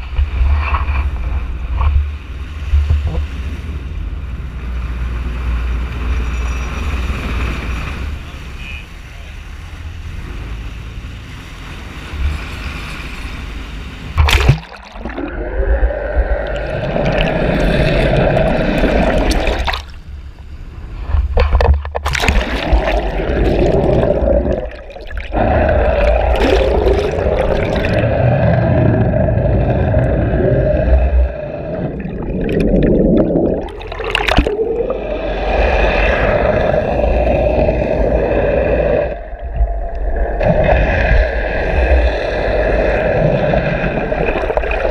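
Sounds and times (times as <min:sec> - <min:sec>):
water rushing and gurgling: 0:00.0 - 0:44.9
sharp splash: 0:14.2 - 0:15.3, 0:22.0 - 0:28.1, 0:32.4 - 0:34.7.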